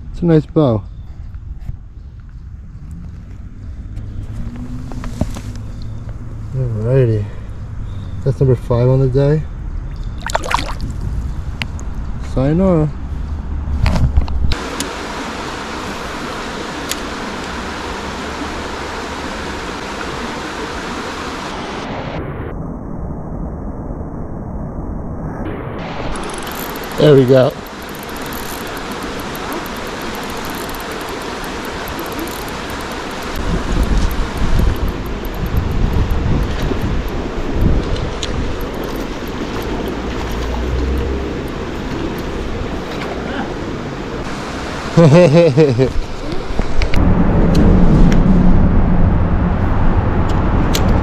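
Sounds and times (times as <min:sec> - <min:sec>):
river water rushing: 0:10.2 - 0:10.9, 0:14.6 - 0:21.9, 0:25.8 - 0:47.0
wind buffeting microphone: 0:24.9 - 0:44.3, 0:45.9 - 0:51.0.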